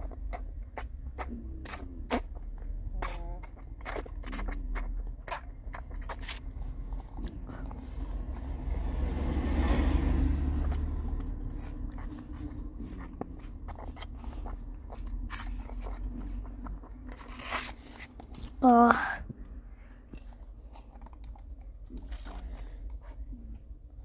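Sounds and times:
car rumble from inside cabin: 0.0s - 24.0s.

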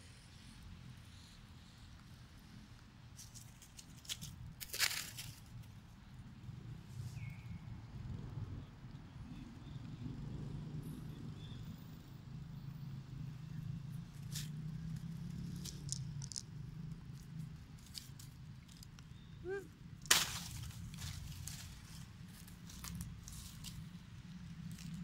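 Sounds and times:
rustling dry leaves: 3.1s - 5.8s, 14.2s - 25.0s.

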